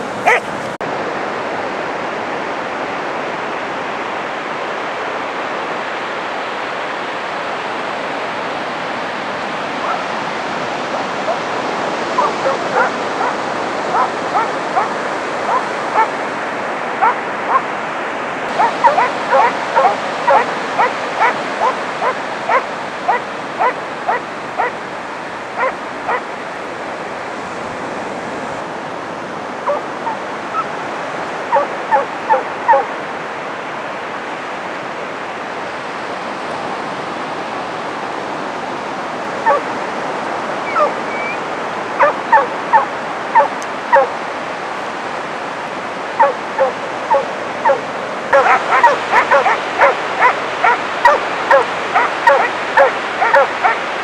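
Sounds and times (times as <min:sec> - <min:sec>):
dogs barking: 0:00.0 - 0:00.8, 0:09.8 - 0:10.1, 0:12.1 - 0:16.2, 0:17.0 - 0:17.7, 0:18.5 - 0:24.8, 0:25.5 - 0:26.4, 0:29.6 - 0:30.2, 0:31.5 - 0:32.9, 0:39.4 - 0:39.7, 0:40.6 - 0:41.4, 0:42.0 - 0:44.2, 0:46.2 - 0:54.0
surf breaking on beach: 0:00.0 - 0:33.0, 0:35.5 - 0:54.0.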